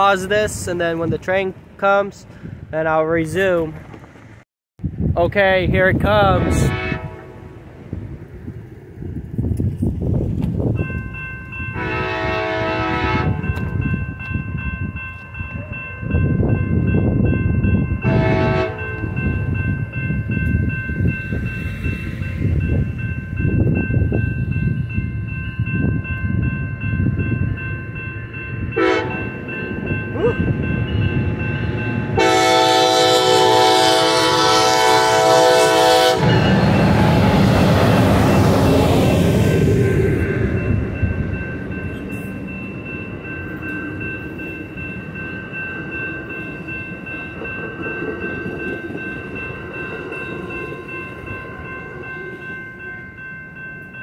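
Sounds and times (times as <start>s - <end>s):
train rushing past: 5.8s - 53.8s
train horn blasts: 6.3s - 7.6s, 11.8s - 13.5s, 18.0s - 19.1s, 28.8s - 29.3s, 32.2s - 37.8s
railroad crossing bell ringing: 10.2s - 54.0s.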